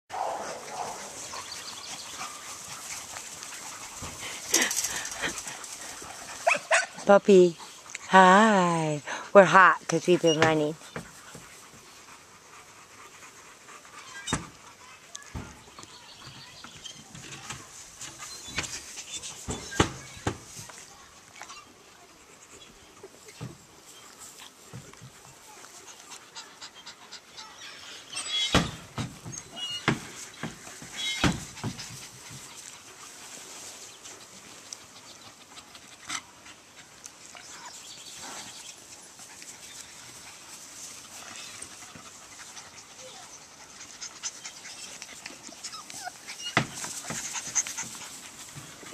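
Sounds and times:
grass rustling: 0.1 - 48.9
puppy panting: 0.2 - 15.5, 21.1 - 28.2, 34.0 - 48.9.

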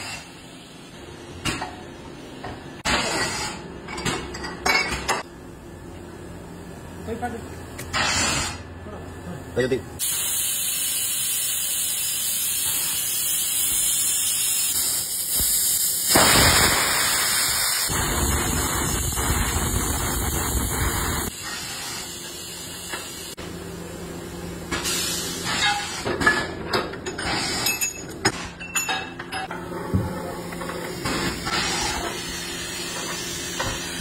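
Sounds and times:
press venting loud hiss: 10.0 - 23.4.

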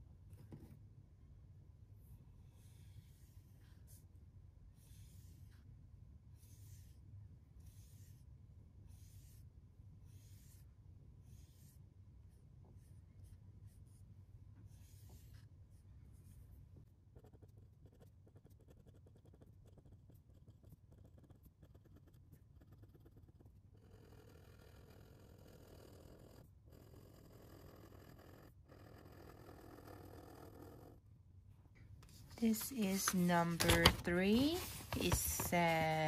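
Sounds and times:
pen nib scratching on paper: 6.4 - 7.0, 7.6 - 8.3, 17.2 - 30.9.

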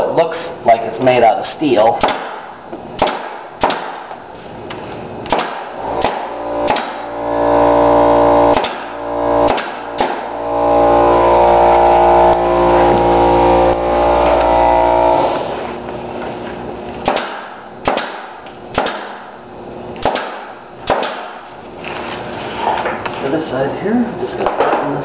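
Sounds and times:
nail gun firing: 2.0 - 4.2, 5.2 - 7.1, 8.4 - 10.4, 17.0 - 19.3, 20.0 - 21.5.

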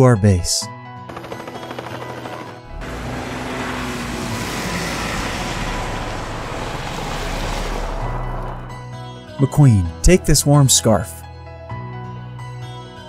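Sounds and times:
background music: 0.0 - 13.0
engine-like rushing sound effect: 2.7 - 8.9.

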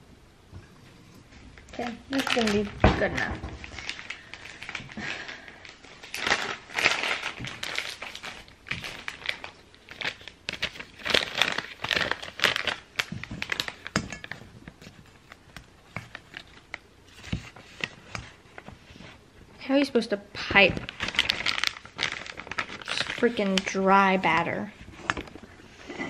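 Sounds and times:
plastic bag crinkling: 1.5 - 18.1, 19.8 - 25.5.

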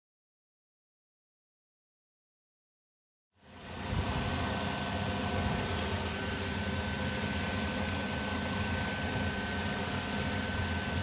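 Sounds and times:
constant high whine: 3.4 - 11.0
steady hum and hiss: 3.4 - 11.0.

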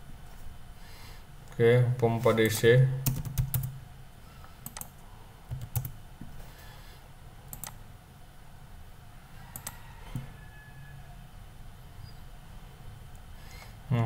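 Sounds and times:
low steady hum: 0.0 - 14.0
keyboard keystrokes: 5.5 - 6.0, 7.5 - 7.8.

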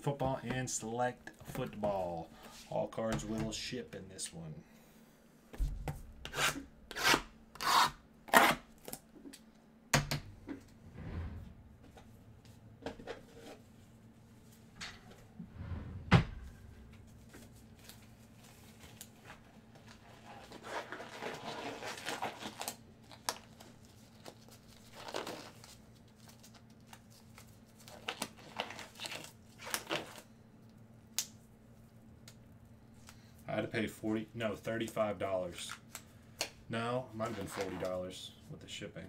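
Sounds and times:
plastic crinkling and rustling: 17.1 - 30.3.

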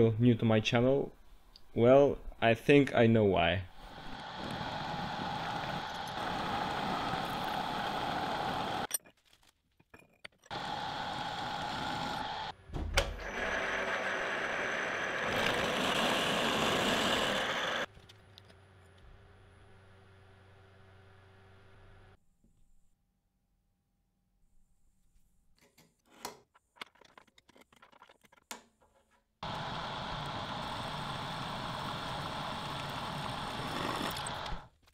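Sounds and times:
drill bit boring into steel: 10.5 - 12.5, 13.2 - 17.9, 29.4 - 34.7.

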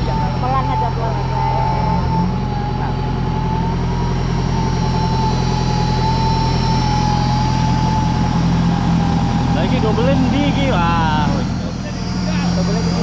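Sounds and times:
engine idling: 0.0 - 13.0
thin wavering whine: 0.0 - 13.0.

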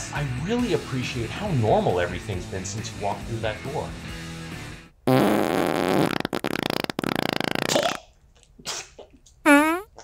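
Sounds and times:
raspy fart: 5.1 - 8.1, 9.5 - 10.0.

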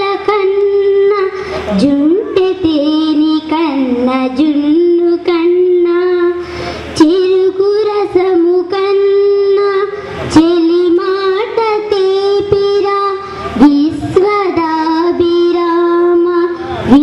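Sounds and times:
girl singing into a microphone: 0.0 - 17.0.

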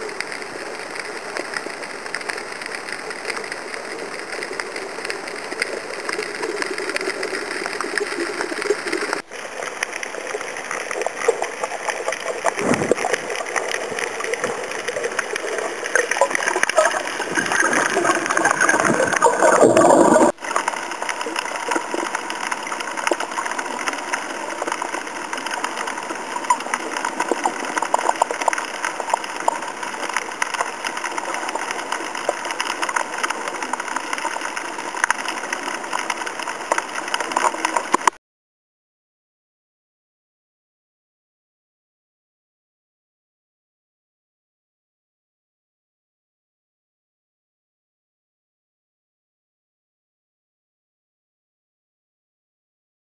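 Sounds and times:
underwater hiss and crackling: 0.0 - 38.2.

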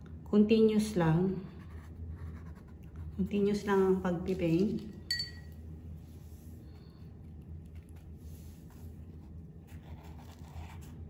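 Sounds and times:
low room hum: 0.0 - 11.0
brush strokes on canvas: 7.7 - 10.5.

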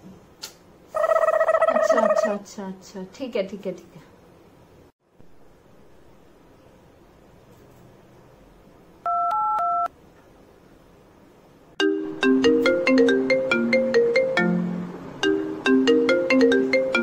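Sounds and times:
phone keypad dialing beeps: 9.1 - 9.9
phone ringtone melody: 11.8 - 14.6, 15.2 - 17.0.

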